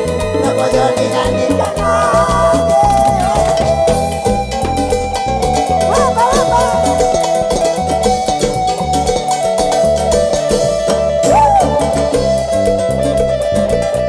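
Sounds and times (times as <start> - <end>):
held melody line: 0.0 - 14.0
steady drum beat: 1.6 - 8.2.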